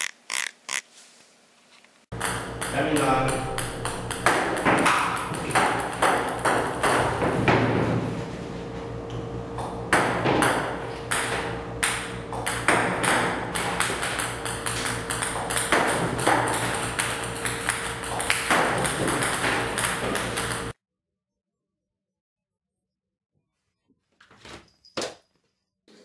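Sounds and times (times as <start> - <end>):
table tennis balls clicking: 0.0 - 0.8, 2.2 - 7.2, 12.5 - 20.7
steady hum: 2.1 - 20.8.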